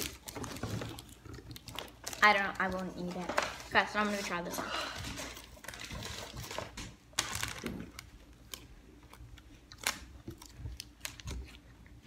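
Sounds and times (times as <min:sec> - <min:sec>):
person chewing crunchy snack: 0:00.0 - 0:02.3, 0:04.9 - 0:12.0.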